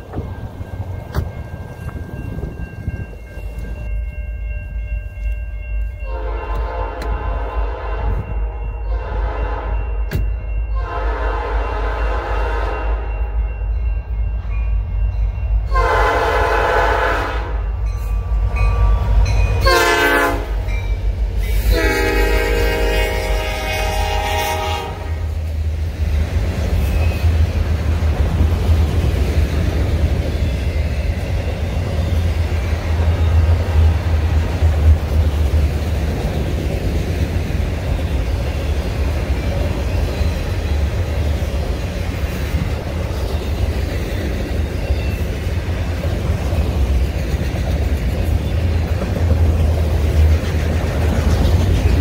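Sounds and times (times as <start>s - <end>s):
train wheels rumbling on rails: 0.0s - 52.0s
locomotive horn: 6.0s - 9.9s, 10.8s - 13.1s, 15.7s - 17.7s, 19.6s - 20.7s, 21.4s - 25.4s.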